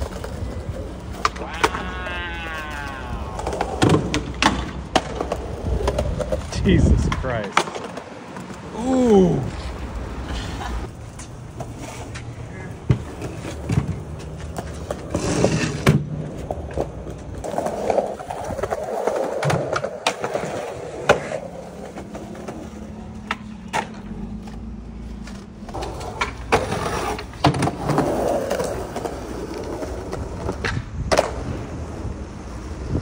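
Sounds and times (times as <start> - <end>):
skateboard clacks: 0.0 - 8.8, 10.8 - 33.0
skateboard wheels rolling on concrete: 0.0 - 33.0.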